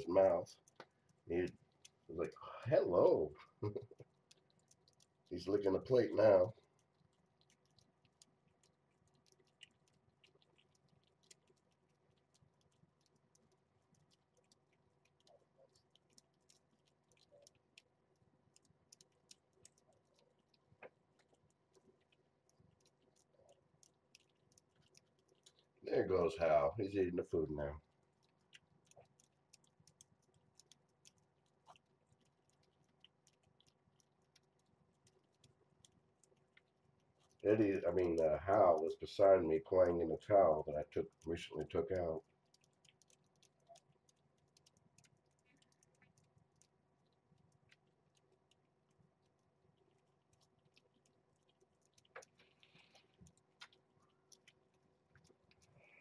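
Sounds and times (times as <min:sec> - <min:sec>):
cats chewing and licking food: 0:00.0 - 0:56.0.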